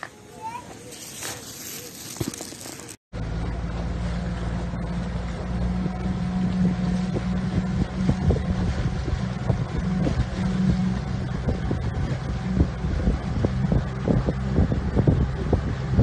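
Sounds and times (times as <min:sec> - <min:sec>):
outboard motor running: 0:03.2 - 0:16.0
wind on microphone: 0:05.7 - 0:16.0.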